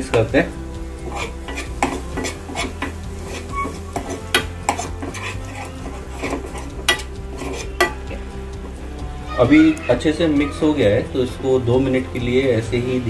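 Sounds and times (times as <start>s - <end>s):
spoon scraping and clinking pan: 1.0s - 8.2s.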